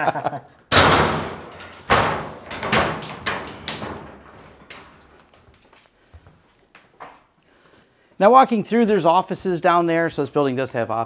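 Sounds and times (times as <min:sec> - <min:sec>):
sheet-metal door banging shut: 0:00.7 - 0:05.1
metal knocks and rattles: 0:00.7 - 0:05.4.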